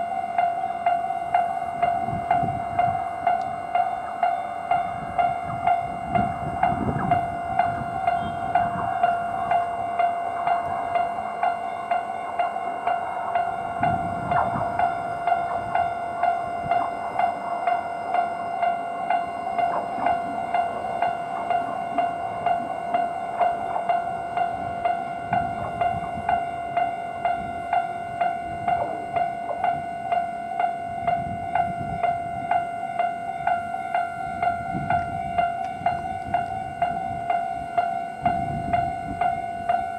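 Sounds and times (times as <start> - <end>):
level crossing warning bell: 0.0 - 39.9.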